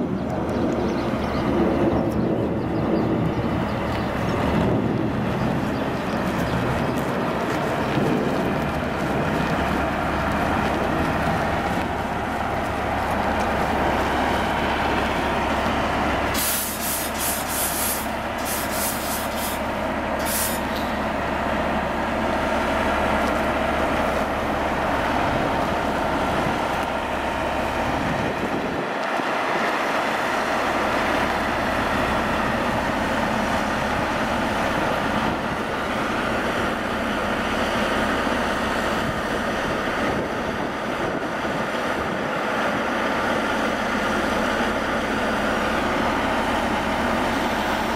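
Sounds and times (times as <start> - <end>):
diesel engine running: 0.0 - 47.9
air brakes hissing: 16.3 - 21.0.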